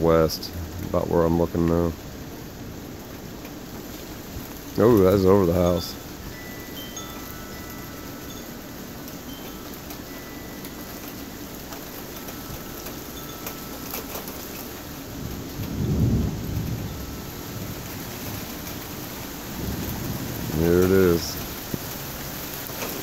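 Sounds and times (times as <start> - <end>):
steady rain falling: 0.0 - 23.0
thunder rumble: 0.0 - 23.0.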